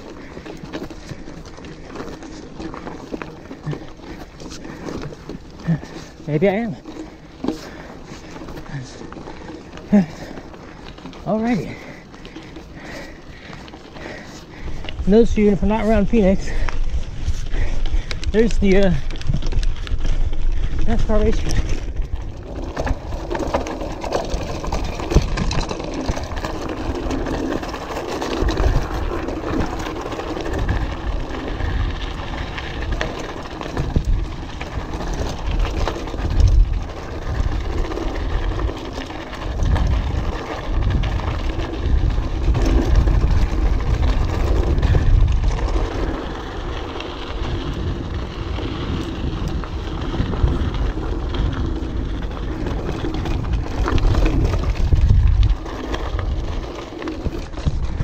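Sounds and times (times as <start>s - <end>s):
bike rattling: 0.0s - 58.0s
bike tyres crunching over rocks: 0.0s - 58.0s
wind on microphone: 39.5s - 46.2s, 47.4s - 56.6s.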